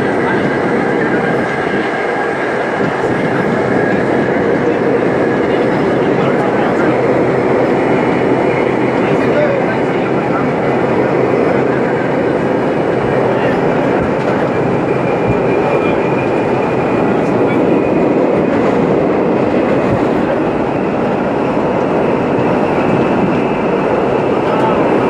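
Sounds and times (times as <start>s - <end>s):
subway train wheels roaring on rails: 0.0s - 25.0s
rail joint clicks: 13.6s - 20.4s.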